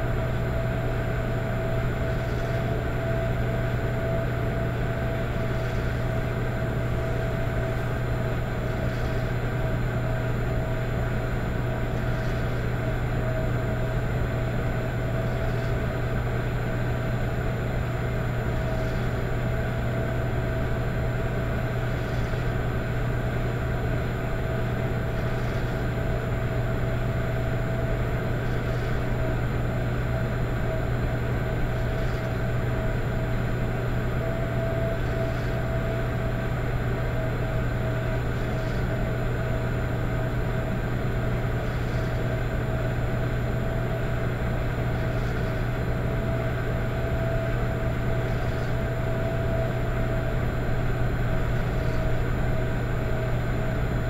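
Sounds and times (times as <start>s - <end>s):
electric fireplace humming: 0.0s - 54.0s.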